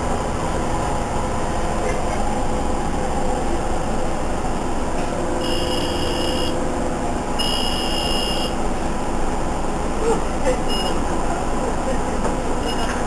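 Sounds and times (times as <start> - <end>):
moving bus engine noise: 0.0 - 13.0
electronic beeps: 5.4 - 6.6.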